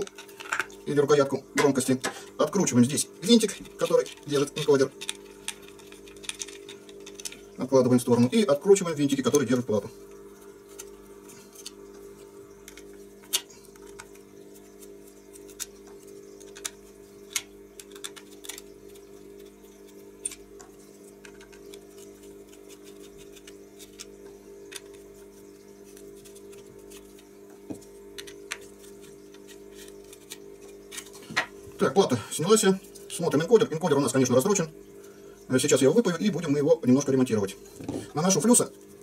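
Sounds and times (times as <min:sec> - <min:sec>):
steady low hum: 0:00.0 - 0:39.0
clicks and taps of small parts: 0:16.4 - 0:18.6.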